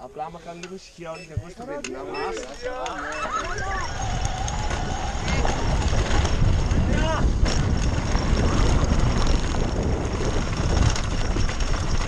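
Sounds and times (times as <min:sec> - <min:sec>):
wind buffeting microphone: 0:03.3 - 0:12.0.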